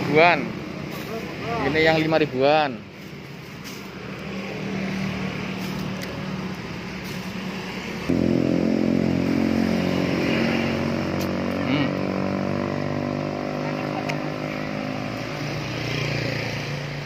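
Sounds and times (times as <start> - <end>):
vehicle engine running: 5.6 - 17.0.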